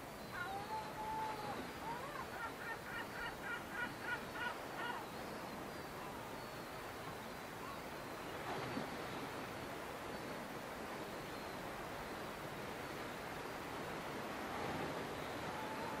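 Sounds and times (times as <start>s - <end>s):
steady background hiss: 0.0s - 16.0s
gull calling: 0.3s - 5.1s.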